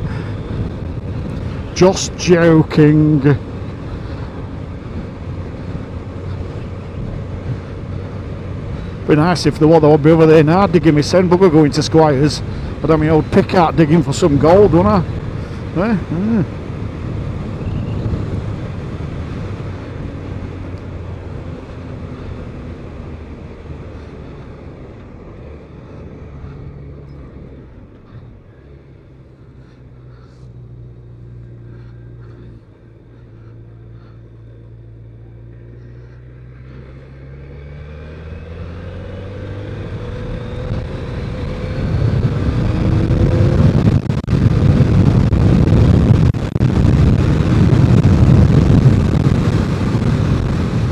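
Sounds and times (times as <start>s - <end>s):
wind noise: 0.0s - 9.4s, 10.5s - 25.2s, 38.2s - 50.9s
motorcycle engine: 0.0s - 50.9s.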